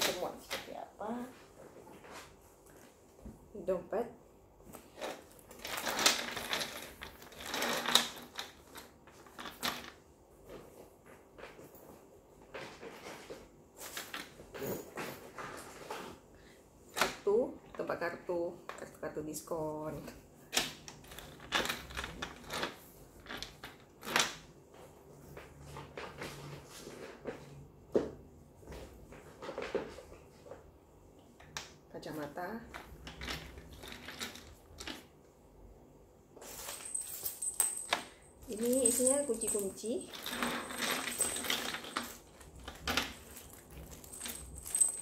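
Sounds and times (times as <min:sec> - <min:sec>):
bag rustling and scraping: 0:38.5 - 0:45.0.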